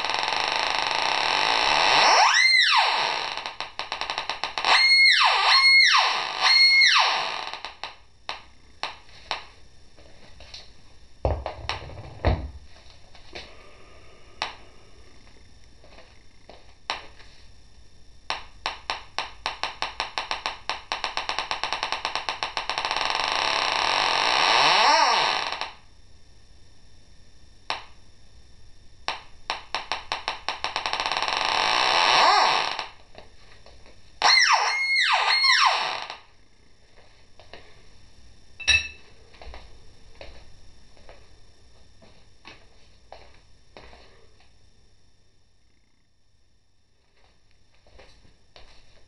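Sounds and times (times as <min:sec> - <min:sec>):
metal detector electronic tone: 0:34.2 - 0:35.9, 0:38.6 - 0:39.0.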